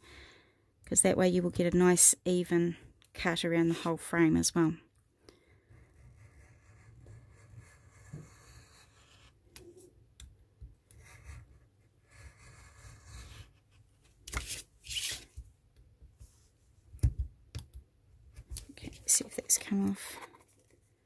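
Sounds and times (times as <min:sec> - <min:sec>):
craft knife cutting paper: 0:05.7 - 0:09.8, 0:10.9 - 0:15.4.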